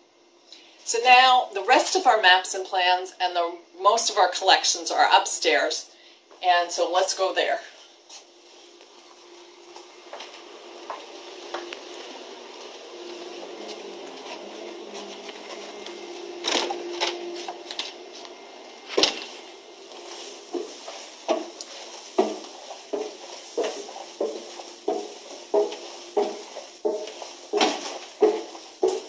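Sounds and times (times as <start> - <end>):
footsteps climbing stairs: 9.7 - 29.0.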